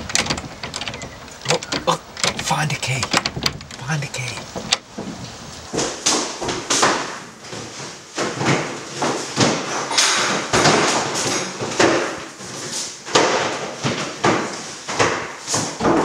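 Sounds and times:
wooden drawers opening and shutting: 0.0s - 7.6s.

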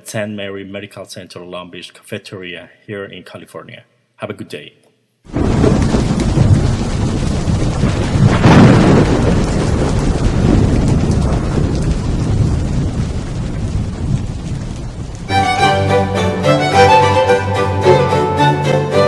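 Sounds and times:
explosion rumble: 5.3s - 15.6s.

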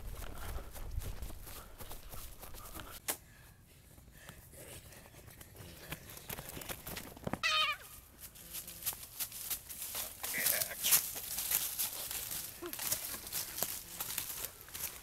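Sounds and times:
footsteps through grass and brush: 0.0s - 3.0s, 7.3s - 15.0s
high-pitched wavering cry: 7.4s - 8.0s.

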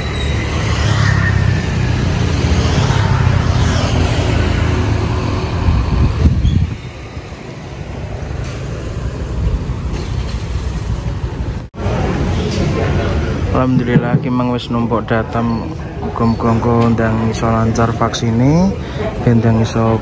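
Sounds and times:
road traffic noise: 0.0s - 20.0s
vehicle engine: 0.0s - 20.0s
sharp bump: 13.6s - 14.5s.

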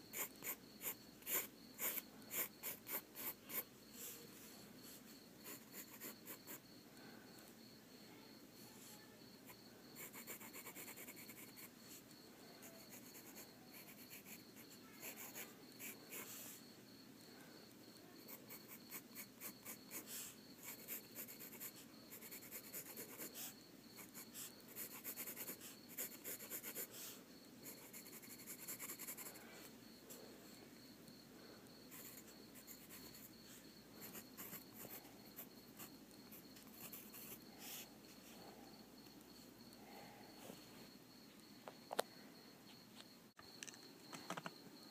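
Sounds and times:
pencil scratching on paper: 0.1s - 6.6s, 10.0s - 12.0s, 12.6s - 16.4s, 18.2s - 27.0s, 27.6s - 29.4s, 31.9s - 33.3s, 34.0s - 37.9s.

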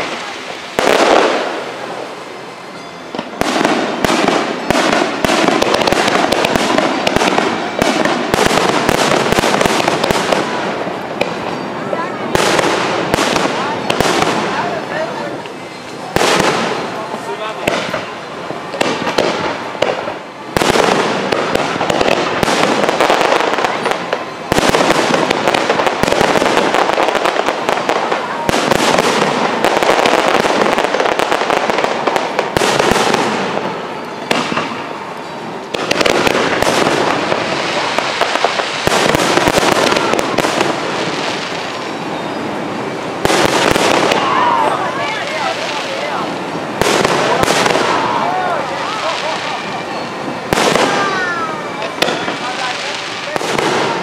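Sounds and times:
fireworks bursting and crackling: 0.0s - 54.0s.

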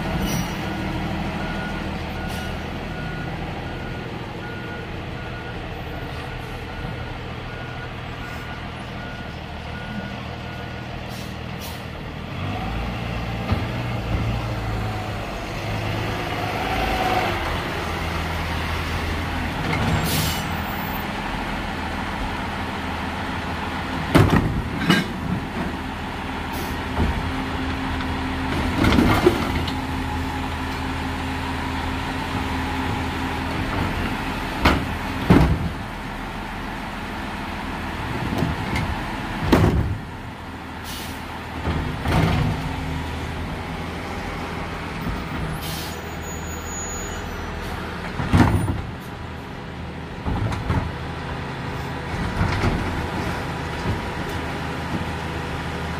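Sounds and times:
air brake hisses: 20.0s - 20.5s, 40.8s - 41.2s, 45.6s - 47.2s.

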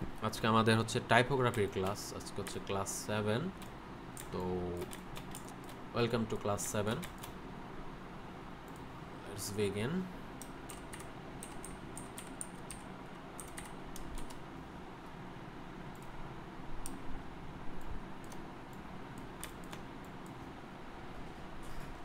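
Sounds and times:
keyboard typing clicks: 3.6s - 5.8s, 10.4s - 14.4s, 17.8s - 20.4s.

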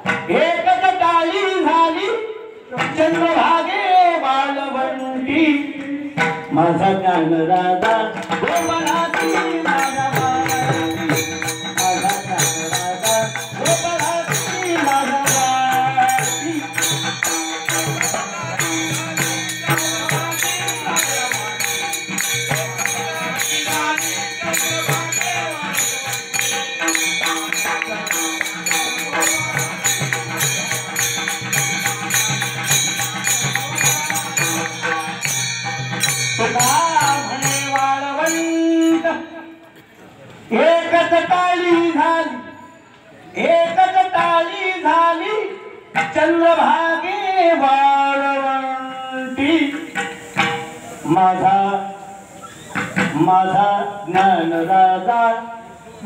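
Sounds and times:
voices singing devotional song: 0.0s - 39.4s
hand cymbals clashing: 8.2s - 39.8s, 48.0s - 56.0s
held tones: 8.5s - 39.0s.

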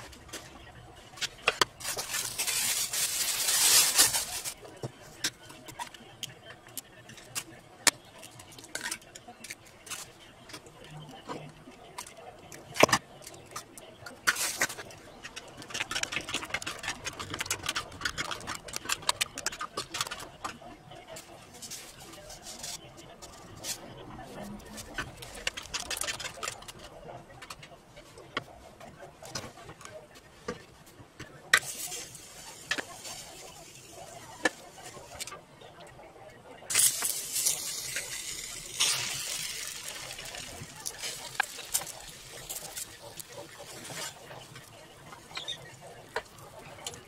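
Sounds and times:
fork beating eggs in plastic bowl: 12.0s - 23.8s, 24.7s - 26.9s, 36.7s - 47.0s.

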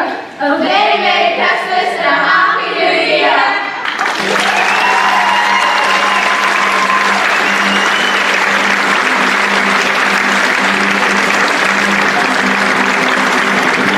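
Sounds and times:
audience applauding: 3.8s - 13.9s.

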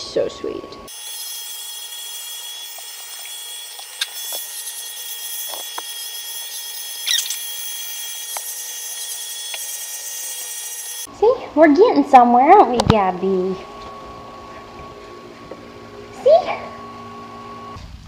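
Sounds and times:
electric clippers whining: 0.7s - 11.1s, 12.6s - 17.8s
high squeak: 6.5s - 7.5s.

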